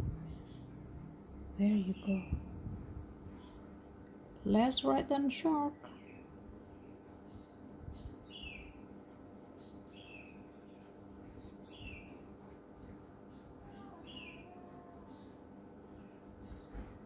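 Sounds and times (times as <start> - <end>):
faint bird chirps: 5.8 - 17.0.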